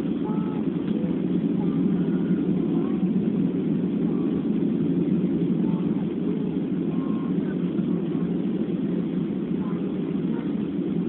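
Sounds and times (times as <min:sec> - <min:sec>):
airplane cabin drone: 0:00.0 - 0:11.0.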